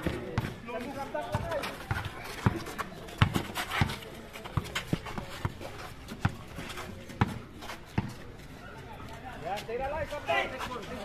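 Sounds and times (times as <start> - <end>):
basketball bouncing on concrete: 0.0 - 8.2.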